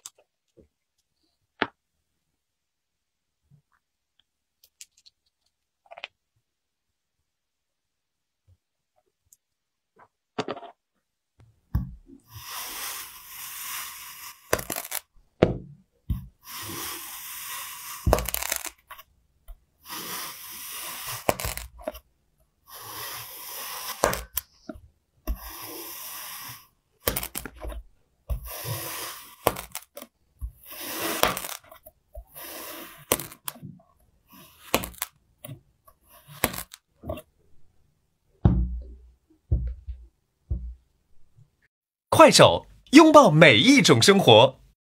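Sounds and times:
cutter scraping through sand: 0:12.3 - 0:15.0, 0:16.4 - 0:18.8, 0:19.8 - 0:21.7, 0:22.7 - 0:24.4, 0:25.3 - 0:26.7, 0:28.4 - 0:29.8, 0:30.6 - 0:31.6, 0:32.3 - 0:33.3.

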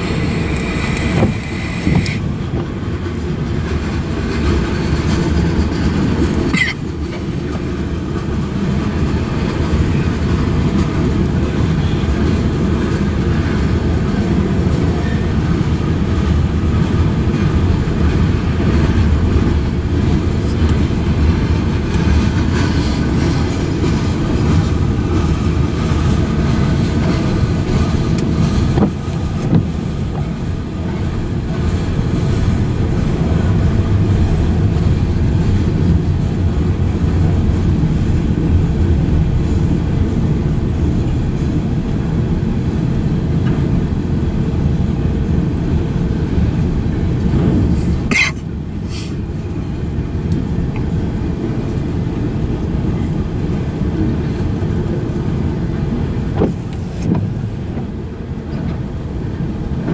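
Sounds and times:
train wheels rumbling on rail: 0:00.0 - 0:59.9.

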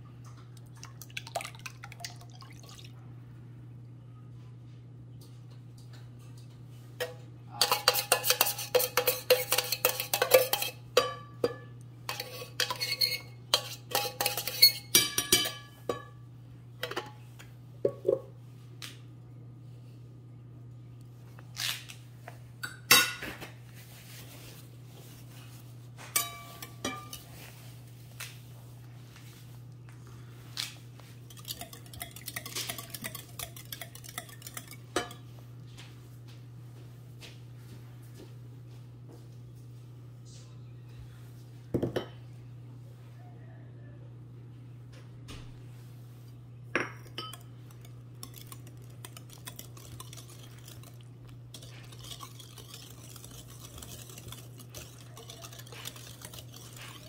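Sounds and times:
whisk knocking: 0:07.6 - 0:16.0, 0:31.3 - 0:35.2, 0:47.2 - 0:57.0
whisk clinking in glass bowl: 0:07.6 - 0:16.1, 0:26.2 - 0:27.3, 0:31.3 - 0:35.3, 0:46.8 - 0:57.0.

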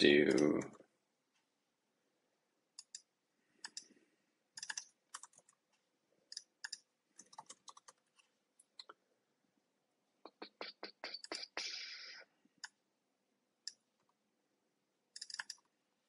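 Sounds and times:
faint keyboard typing: 0:02.7 - 0:09.0, 0:15.1 - 0:15.8.

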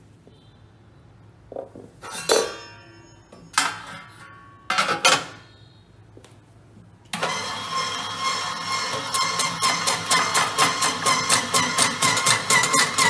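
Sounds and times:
metal parts clanking: 0:02.0 - 0:05.4.

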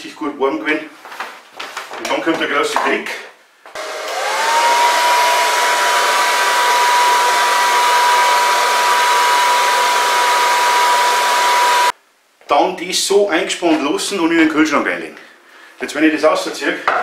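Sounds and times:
hair dryer motor whine: 0:03.8 - 0:11.9.

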